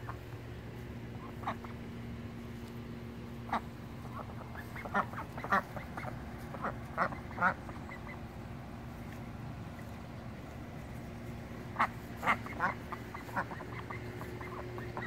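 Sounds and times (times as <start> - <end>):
duck quacking: 1.1 - 2.0, 3.4 - 8.3, 11.6 - 15.0.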